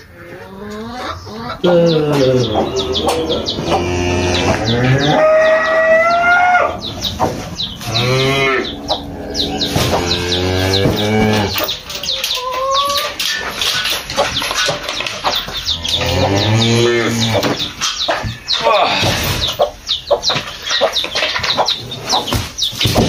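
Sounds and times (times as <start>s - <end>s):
cattle mooing: 1.6s - 6.8s, 7.8s - 11.7s, 15.8s - 17.5s.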